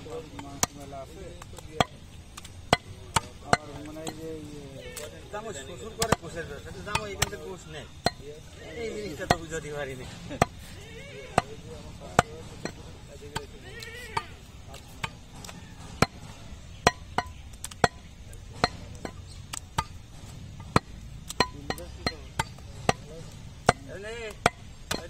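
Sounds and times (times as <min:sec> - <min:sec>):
cleaver chopping on wooden block: 0:11.3 - 0:25.0.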